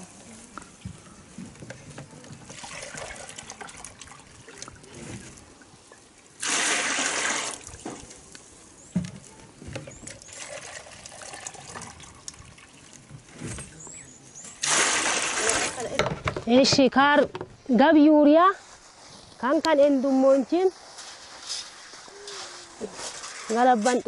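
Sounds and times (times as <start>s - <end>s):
water pouring into plastic jug: 2.4s - 5.3s, 6.4s - 7.9s, 10.0s - 13.2s, 14.6s - 15.8s
water pouring into metal basin: 6.4s - 7.7s, 10.2s - 13.0s
plastic containers knocking: 16.0s - 17.6s.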